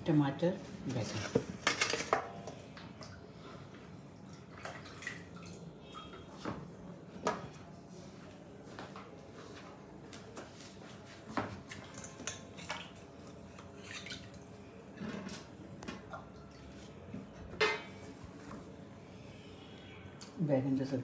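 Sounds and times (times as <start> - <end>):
dishes and utensils clinking: 17.5 - 18.1.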